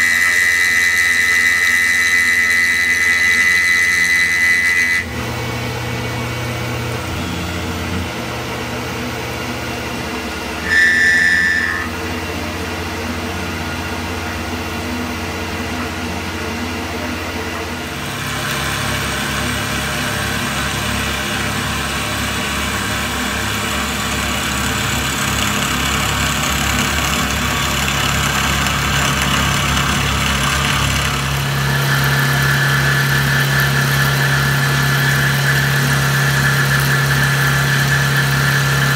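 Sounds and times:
high-pitched cutting whine: 0.0 - 38.9
milling machine hum: 0.0 - 38.9
brief high tone: 6.8 - 8.0, 10.6 - 12.8.

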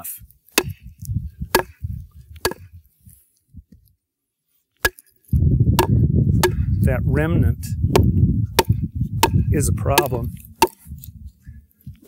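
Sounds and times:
wooden baton striking knife: 0.5 - 0.9, 1.5 - 1.8, 2.4 - 2.7, 4.8 - 5.1, 5.8 - 6.8, 7.9 - 10.9.

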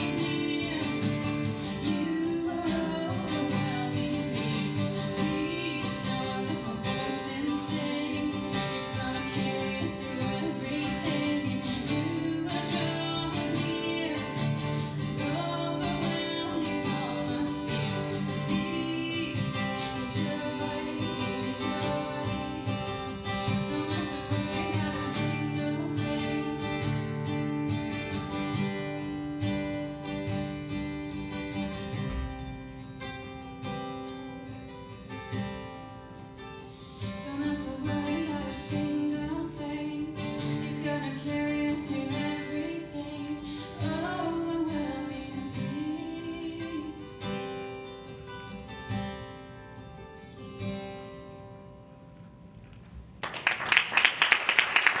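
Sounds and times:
woman singing: 0.0 - 27.1, 37.0 - 47.7
acoustic guitar strumming: 0.0 - 53.2
applause: 52.7 - 55.0.

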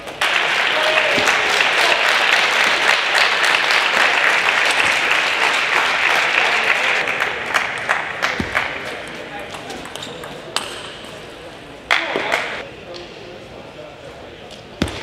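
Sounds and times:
audience applauding: 0.1 - 9.2.

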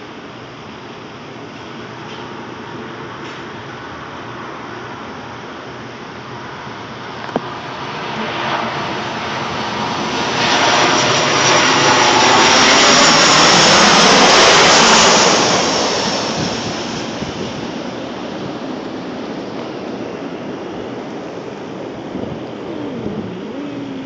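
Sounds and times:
jet airliner engine roar: 0.0 - 24.0
jet engine high whine: 0.0 - 24.0.

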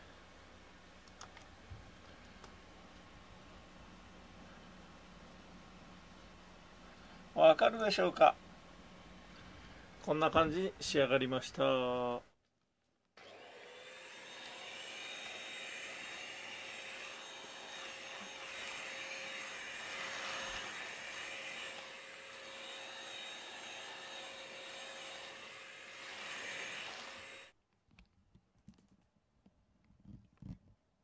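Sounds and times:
vacuum cleaner running: 13.2 - 27.5.

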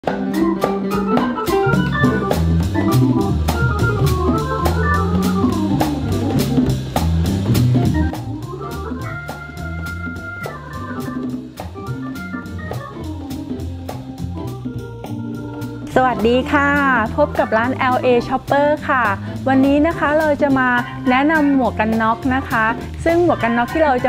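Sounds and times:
organ-like keyboard chords: 0.0 - 18.1
steady drum beat: 0.0 - 24.0
bass line: 0.1 - 24.0.

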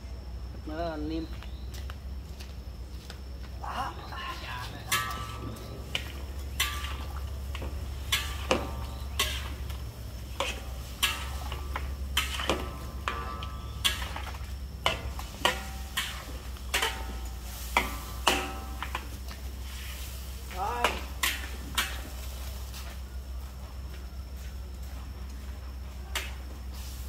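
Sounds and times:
metal utensil scraping cooking pot: 4.9 - 19.0.

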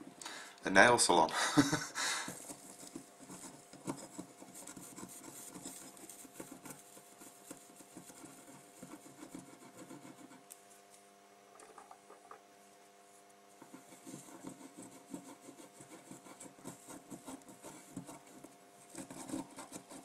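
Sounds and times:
low steady hum: 0.0 - 20.0
cotton swab scrubbing board: 2.3 - 10.5, 13.5 - 20.0.

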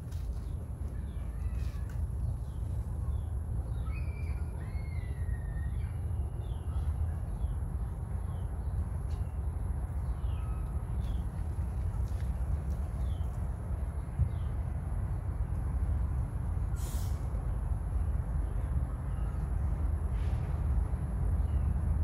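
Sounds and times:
steady low rumble: 0.0 - 22.0
birds chirping: 0.1 - 16.3
gliding whistled bird call: 3.8 - 6.4.

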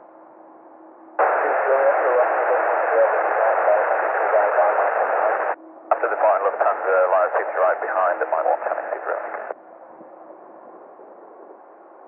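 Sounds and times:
loud radio static: 1.2 - 9.5
radio hiss and hum: 1.2 - 9.6.

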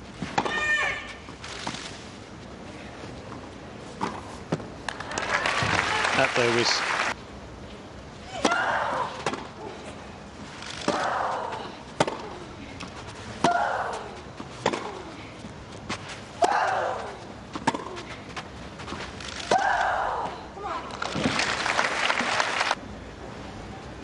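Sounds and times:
racket hitting tennis ball: 12.0 - 12.5, 13.3 - 15.1, 16.4 - 18.2.

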